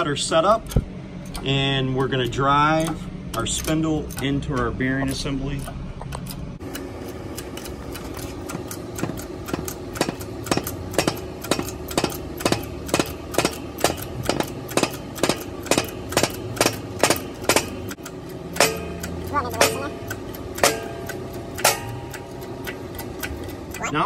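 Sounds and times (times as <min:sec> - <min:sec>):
machine hum: 0:00.0 - 0:24.0.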